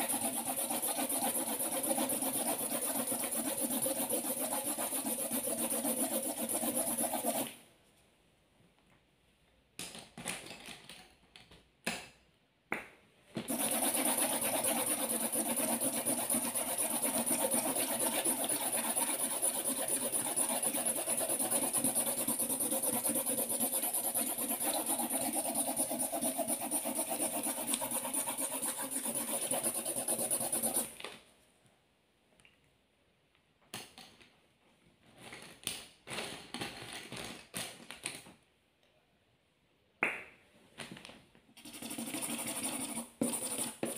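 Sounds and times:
marker scribbling on paper: 0:00.0 - 0:07.5, 0:13.5 - 0:30.9, 0:41.6 - 0:43.9.

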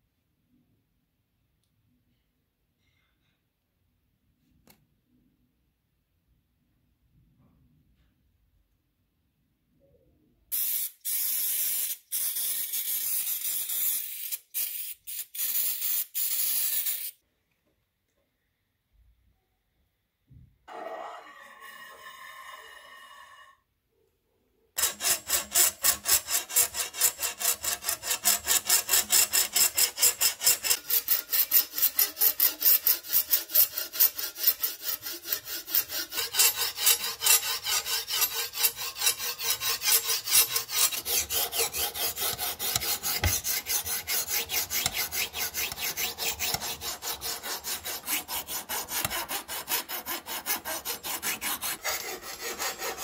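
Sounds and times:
hand file rasping on steel blade: 0:20.7 - 0:23.6, 0:24.8 - 0:53.0.

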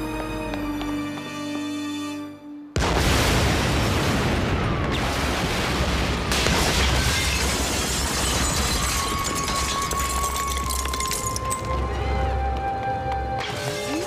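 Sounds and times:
building explosion rumbling blast: 0:02.8 - 0:08.5.

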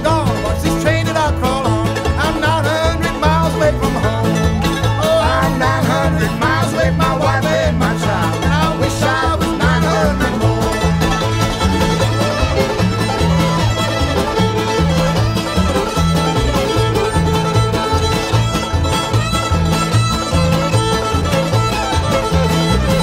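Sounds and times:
banjo: 0:00.0 - 0:23.0
fiddle: 0:00.0 - 0:23.0
string band playing: 0:00.0 - 0:23.0
upright bass: 0:00.0 - 0:23.0.

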